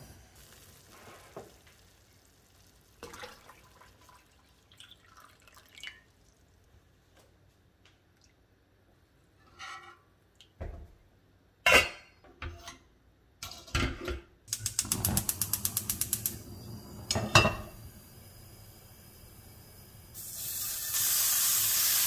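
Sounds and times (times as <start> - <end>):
gas flame hissing: 0.0 - 2.8, 14.5 - 22.0
igniter ticking: 14.5 - 17.2
metal pots clanking: 17.1 - 17.8.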